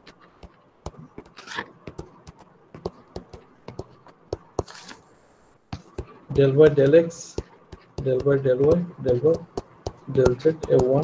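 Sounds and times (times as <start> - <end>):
stylus scratching strokes: 0.0 - 11.0
stylus tapping on touchscreen: 0.3 - 5.0, 5.7 - 11.0.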